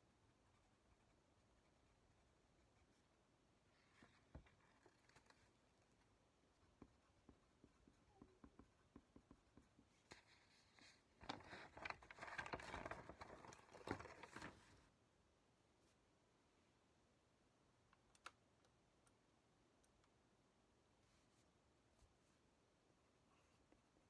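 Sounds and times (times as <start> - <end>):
paper pages rustling: 10.1 - 14.8.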